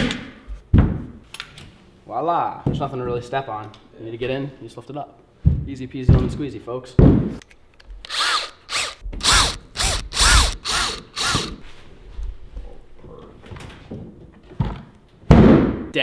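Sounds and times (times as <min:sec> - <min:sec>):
cordless drill whirring: 0:08.0 - 0:11.6.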